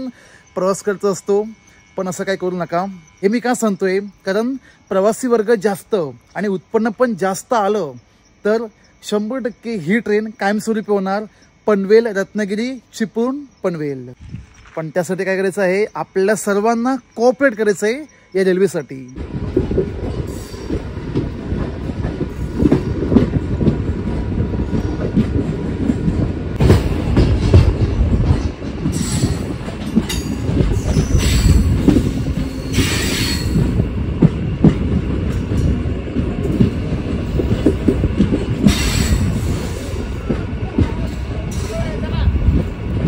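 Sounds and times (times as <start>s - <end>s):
electric train rumbling on track: 0.0s - 43.0s
high-pitched squeals: 28.9s - 33.8s.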